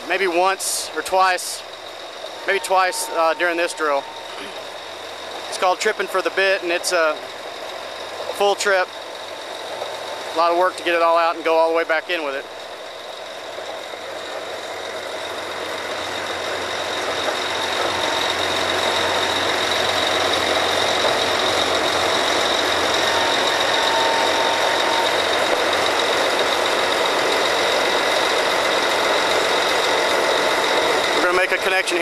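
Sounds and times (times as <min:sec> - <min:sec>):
drilling rig machinery din: 0:00.0 - 0:32.0
thin high whine: 0:00.0 - 0:32.0.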